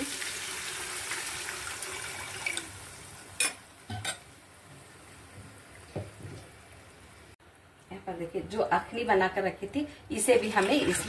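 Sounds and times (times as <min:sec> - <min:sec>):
water pouring into pot: 0:00.0 - 0:03.3, 0:10.4 - 0:11.0.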